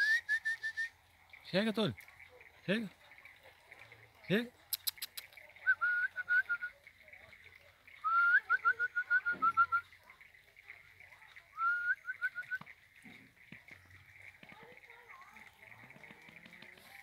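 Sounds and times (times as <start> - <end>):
loud whistled call with pips: 0.0 - 1.0, 4.8 - 6.8, 8.0 - 10.0, 11.6 - 12.6
frogs ticking: 0.0 - 17.0.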